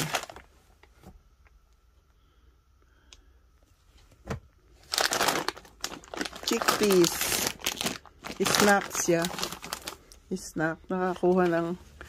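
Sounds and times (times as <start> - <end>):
plastic snack bag crinkling: 0.0 - 0.5, 4.8 - 10.5.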